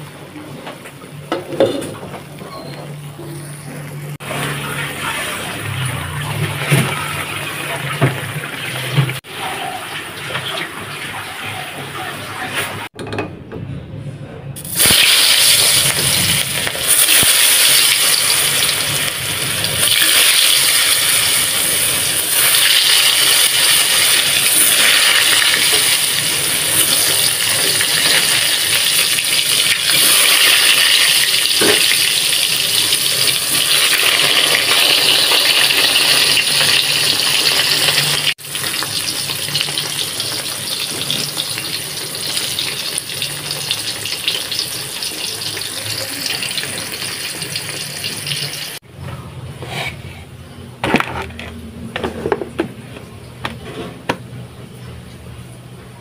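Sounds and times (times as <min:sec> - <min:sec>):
hot oil sizzling: 0:03.9 - 0:12.9, 0:14.6 - 0:48.8.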